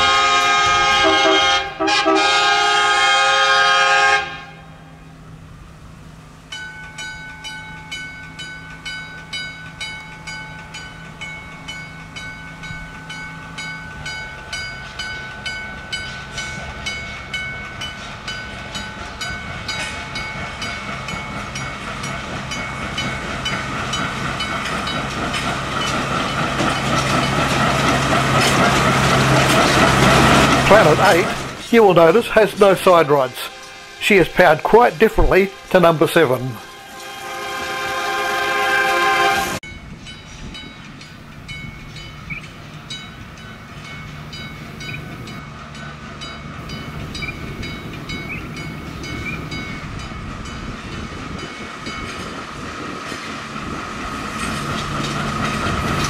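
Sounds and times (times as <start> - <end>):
diesel locomotive horn: 0.0 - 5.2, 32.0 - 39.6
locomotive engine: 0.0 - 56.0
train wheels clicking over rail joints: 6.6 - 34.1, 40.0 - 56.0.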